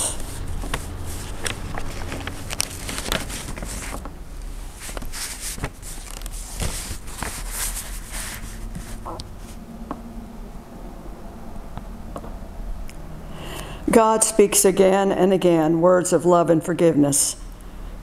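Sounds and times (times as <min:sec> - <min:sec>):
soft rustles: 0:00.0 - 0:09.7
steady low hum: 0:00.0 - 0:18.0.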